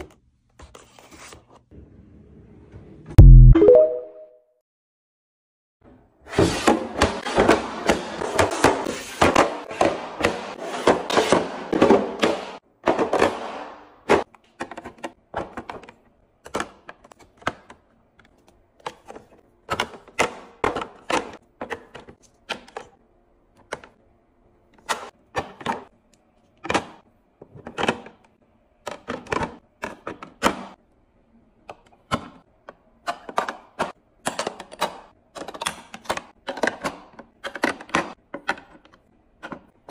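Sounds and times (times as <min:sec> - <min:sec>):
plastic items clicking and knocking: 0:31.7 - 0:39.9.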